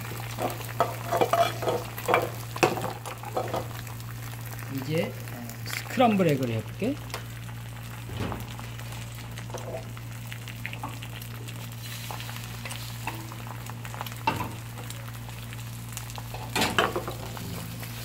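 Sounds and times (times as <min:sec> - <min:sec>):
eggs sizzling and spattering: 0:00.0 - 0:18.0
oil sizzling in a frying pan: 0:00.0 - 0:18.0.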